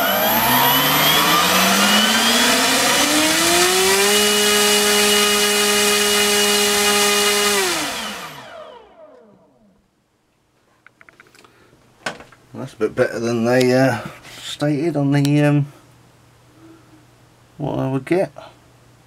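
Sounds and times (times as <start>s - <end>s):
electric motor propeller whine: 0.0s - 9.8s.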